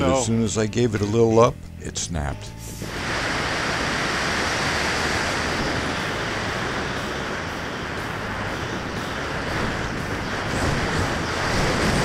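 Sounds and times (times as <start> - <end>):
rushing wind noise: 2.6 - 12.0.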